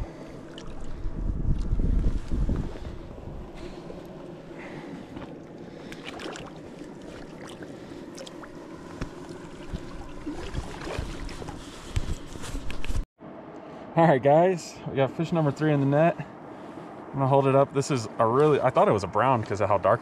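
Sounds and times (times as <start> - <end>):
river water flowing: 3.4 - 11.6.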